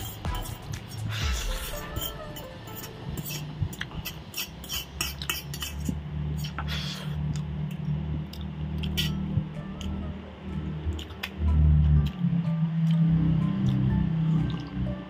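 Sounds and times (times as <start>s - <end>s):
cutlery scraping metal plate: 1.6s - 5.9s.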